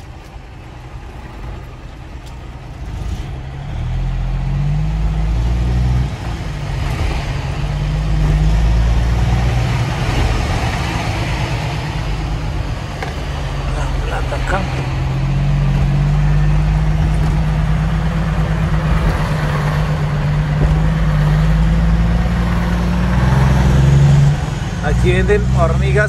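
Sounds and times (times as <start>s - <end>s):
diesel truck engine revving: 0.0s - 26.0s.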